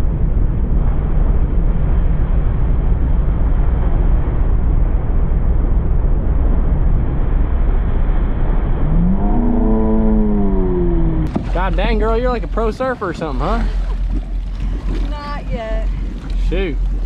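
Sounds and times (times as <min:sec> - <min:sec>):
boat engine drone: 0:00.0 - 0:17.0
churning wake wave rushing: 0:00.0 - 0:17.0
wind buffeting camera: 0:00.0 - 0:17.0
rising and sliding pitched tone: 0:08.3 - 0:11.3.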